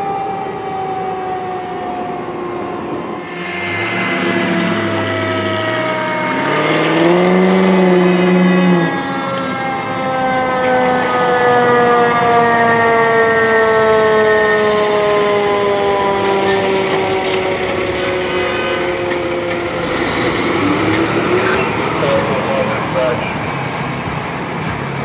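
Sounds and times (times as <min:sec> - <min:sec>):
fire truck siren wailing: 0:00.0 - 0:25.0
deep loud horn blast: 0:03.2 - 0:09.4.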